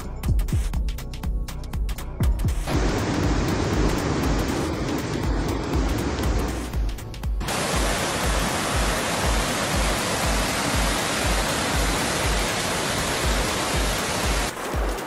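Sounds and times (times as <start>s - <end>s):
background music with low beat: 0.0s - 15.0s
floodwater rushing: 2.7s - 15.0s.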